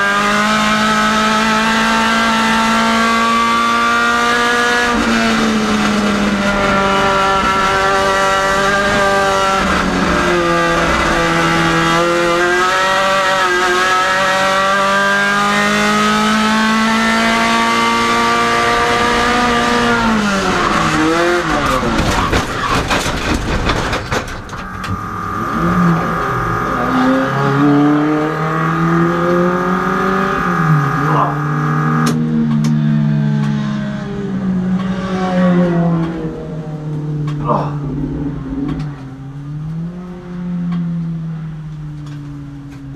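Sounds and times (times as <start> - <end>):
race car engine revving: 0.0 - 42.9
tyres skidding: 16.9 - 32.1
car crash bangs: 21.5 - 25.4.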